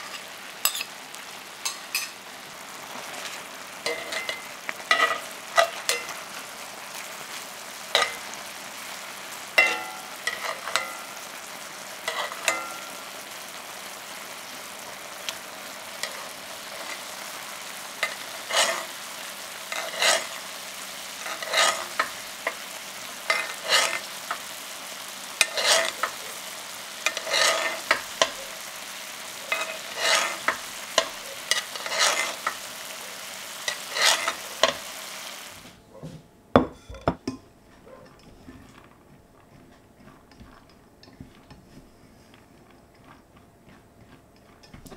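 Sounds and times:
metal spoon scraping a pan: 0:00.0 - 0:01.0, 0:01.6 - 0:02.2, 0:03.1 - 0:06.6, 0:07.9 - 0:11.2, 0:11.8 - 0:13.2, 0:15.3 - 0:35.0
sauce sizzling in a skillet: 0:00.0 - 0:35.8.

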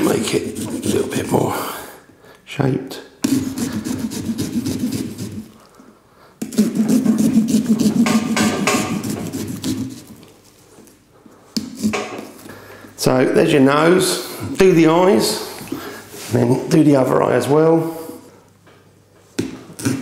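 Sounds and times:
saw rasping through pumpkin rind: 0:00.0 - 0:01.4, 0:03.2 - 0:05.6, 0:06.4 - 0:10.1.

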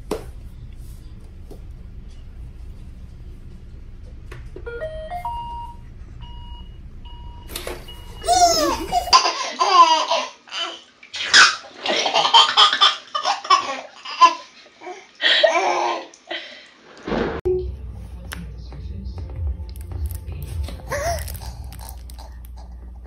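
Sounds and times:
baby squealing: 0:08.2 - 0:09.2
baby giggling: 0:08.2 - 0:10.8, 0:20.9 - 0:21.5.

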